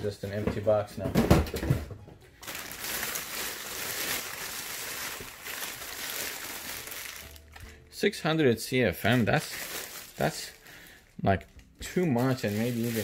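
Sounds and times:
packaging crinkling rustle: 0:02.4 - 0:07.8, 0:09.0 - 0:13.0.

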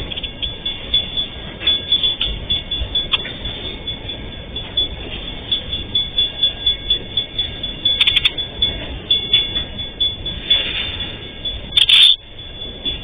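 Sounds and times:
high-pitched ringing: 0:00.0 - 0:13.0
train wagons clattering on rails: 0:00.0 - 0:13.0
sharp metallic clicks: 0:11.8 - 0:12.2.

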